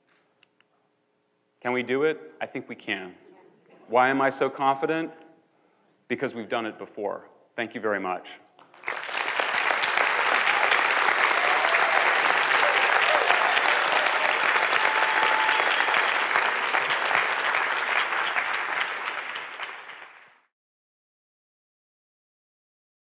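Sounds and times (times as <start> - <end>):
audience applauding: 8.6 - 20.5.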